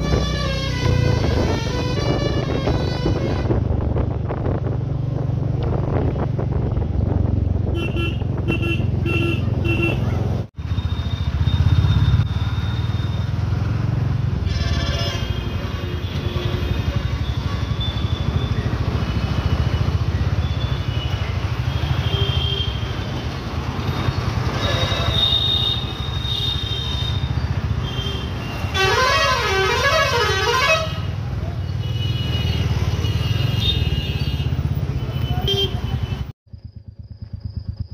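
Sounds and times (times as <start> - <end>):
vehicle horns honking: 0.0 - 3.6, 7.7 - 10.2, 14.4 - 18.6, 20.4 - 23.2, 24.4 - 36.3
motorcycle engine and road rumble: 0.0 - 37.9.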